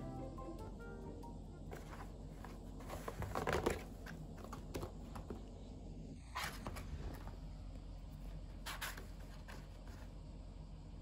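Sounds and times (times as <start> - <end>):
low steady hum: 0.0 - 11.0
cat scraping cardboard carton: 8.6 - 10.2.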